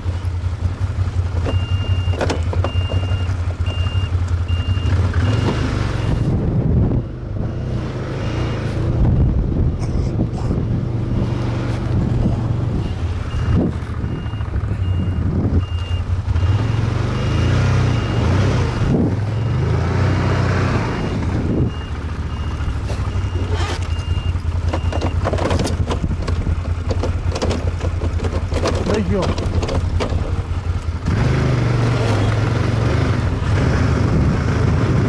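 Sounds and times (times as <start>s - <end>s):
snowmobile engine running: 0.0s - 35.0s
reverse warning beeper: 1.5s - 9.3s, 12.7s - 19.8s, 20.7s - 25.2s.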